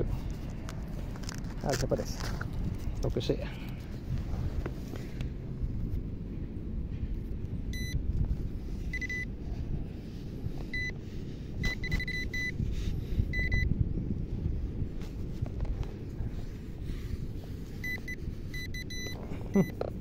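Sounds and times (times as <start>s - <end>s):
low rumble: 0.0s - 20.0s
metal detector beeping: 7.7s - 8.0s, 8.9s - 9.3s, 10.7s - 11.0s, 11.6s - 12.6s, 13.3s - 13.7s, 17.8s - 19.8s.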